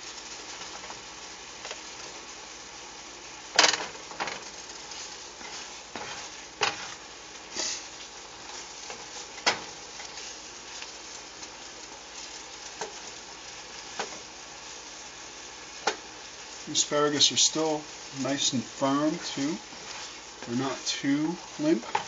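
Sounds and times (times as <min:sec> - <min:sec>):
vegetables sizzling in a skillet: 0:00.0 - 0:22.0
spatula scraping a pan: 0:03.6 - 0:10.9, 0:19.2 - 0:20.9.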